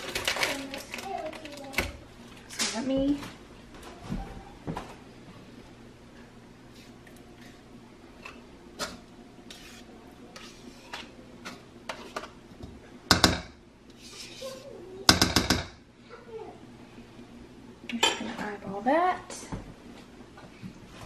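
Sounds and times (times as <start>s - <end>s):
spoon scraping plastic tub: 9.5s - 12.4s.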